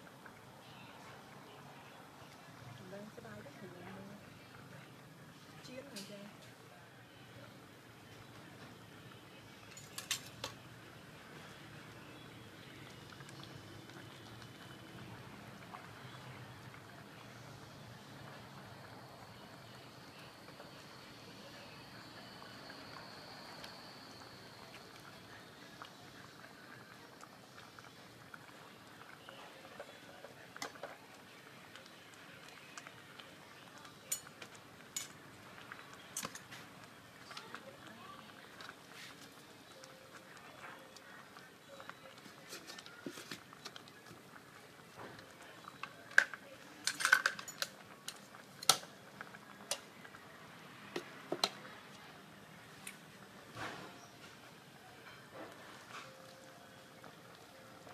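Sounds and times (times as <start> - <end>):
low steady hiss: 0.0 - 57.9
metal spoon clinking on pot: 34.1 - 35.2, 46.2 - 47.7.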